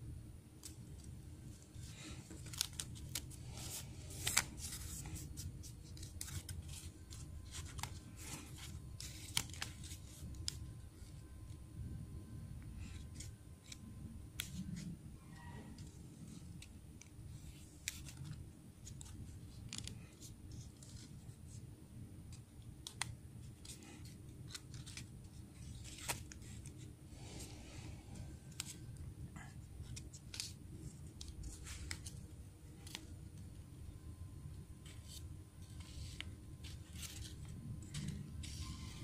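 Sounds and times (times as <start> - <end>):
steady low hum: 0.0 - 39.0
paper crinkling: 0.6 - 11.4, 22.3 - 26.9, 28.2 - 33.8, 34.5 - 39.0.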